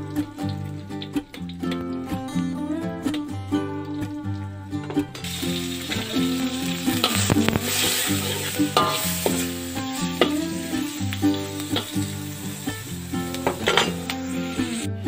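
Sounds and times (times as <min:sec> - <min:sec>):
food sizzling in oil: 0:00.0 - 0:01.8, 0:05.1 - 0:15.0
metal spatula knocking wok: 0:08.6 - 0:10.5, 0:13.3 - 0:14.2.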